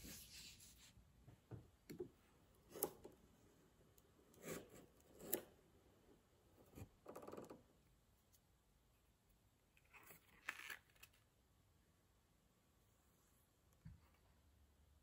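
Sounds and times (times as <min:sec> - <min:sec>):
knife cutting leather: 0:04.4 - 0:05.5.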